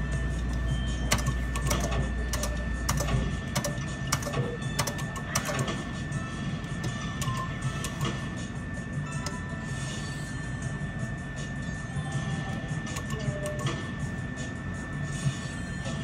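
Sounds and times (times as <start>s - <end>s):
game music: 0.0s - 16.0s
electronic clicks and ticks: 12.9s - 13.8s.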